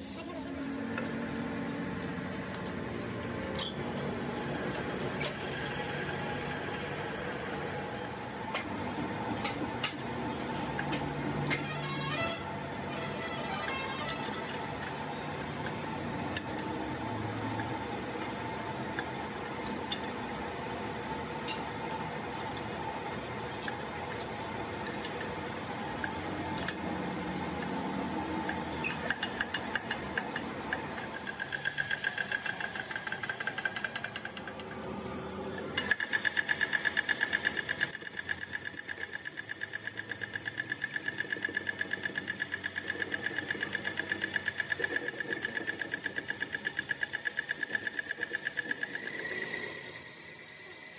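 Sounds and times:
metal lathe running: 0:00.0 - 0:50.9
pulsing high whine of cutting tool: 0:10.5 - 0:18.0, 0:31.0 - 0:50.9.

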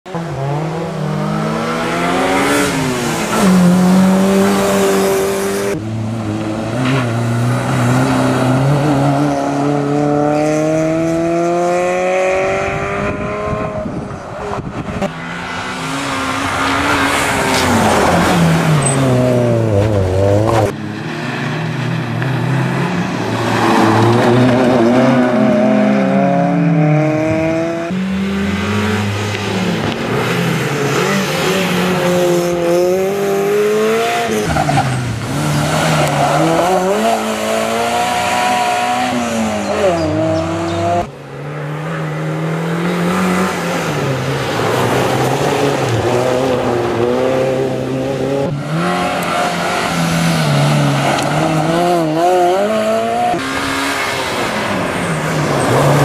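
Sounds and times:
rally car engine revving: 0:00.1 - 0:56.0.

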